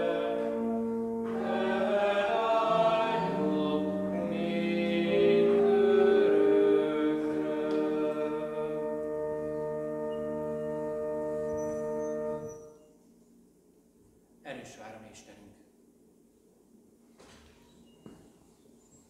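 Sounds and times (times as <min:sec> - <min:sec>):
congregation singing a hymn: 0:00.0 - 0:11.8.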